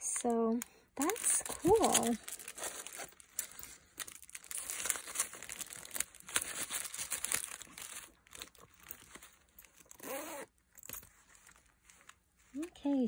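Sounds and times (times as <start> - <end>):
brushes rustling in fabric pouch: 1.0 - 13.0
zip closing: 9.9 - 10.5.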